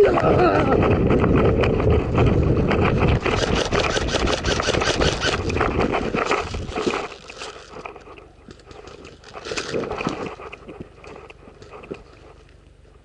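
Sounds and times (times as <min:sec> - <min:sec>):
wind rumble on camera: 0:00.0 - 0:13.0
running footsteps on grass: 0:00.4 - 0:13.0
gear clattering and scraping: 0:01.2 - 0:12.5.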